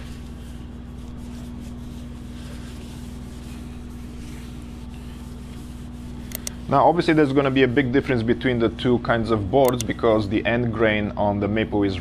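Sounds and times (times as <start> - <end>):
cloth rubbing on wooden board: 0.0 - 8.4
workshop machine humming: 0.0 - 12.0.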